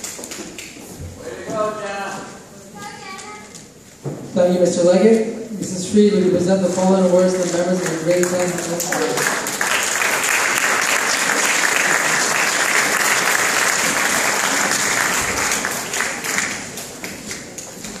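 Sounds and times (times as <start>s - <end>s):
audience applauding: 7.3s - 17.8s.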